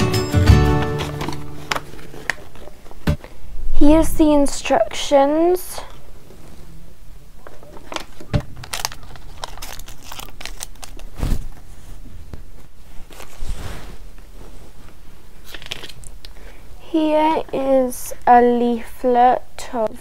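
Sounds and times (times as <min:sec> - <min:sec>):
paper leaflet crinkling and rustling: 0:00.7 - 0:03.4, 0:07.4 - 0:13.5, 0:14.2 - 0:16.2.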